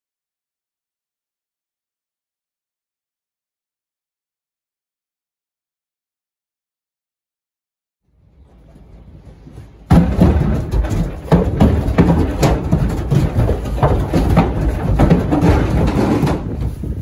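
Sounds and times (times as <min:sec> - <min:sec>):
hooves thumping on trailer floor: 0:08.4 - 0:17.0.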